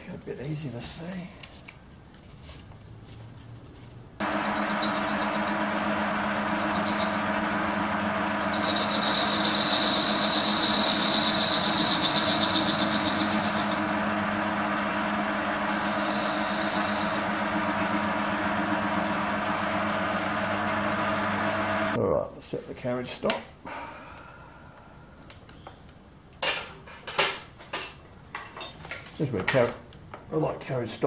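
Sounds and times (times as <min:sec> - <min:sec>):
high whine: 0:04.2 - 0:22.0
lathe motor hum: 0:04.2 - 0:22.0.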